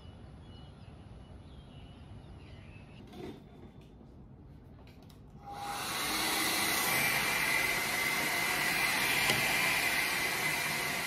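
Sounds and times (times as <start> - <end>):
hair dryer blowing: 5.4 - 11.0.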